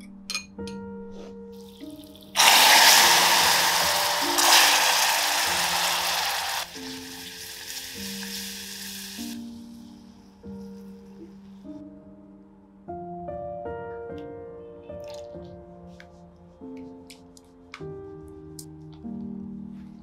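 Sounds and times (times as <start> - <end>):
soft background music: 0.0 - 20.0
caramel hissing and sizzling: 1.7 - 9.6.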